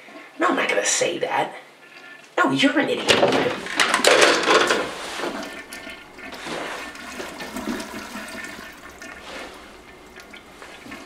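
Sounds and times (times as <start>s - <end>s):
toilet flushing: 2.8s - 11.0s.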